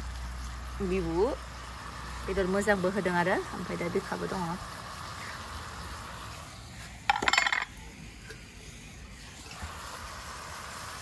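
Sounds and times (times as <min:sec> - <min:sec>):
metal cookware clattering: 0:07.1 - 0:07.8.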